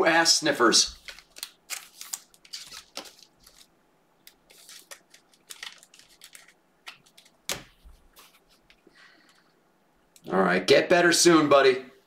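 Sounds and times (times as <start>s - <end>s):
cards swishing and clicking: 0.8s - 3.7s, 4.3s - 8.8s.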